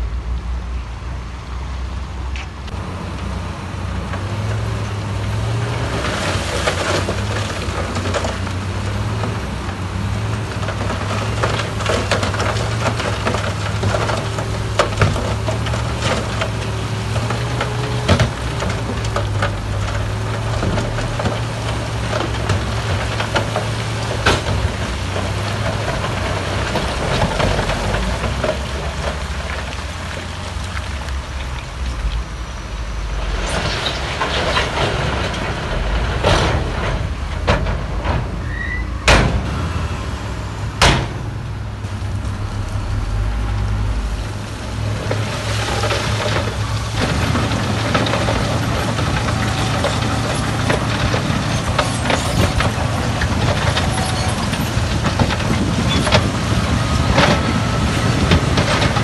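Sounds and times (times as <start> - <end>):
diesel machinery rumbling: 0.0 - 59.0
metal knocks and clanks: 32.9 - 39.6, 45.0 - 59.0
sharp bangs: 40.8 - 41.5.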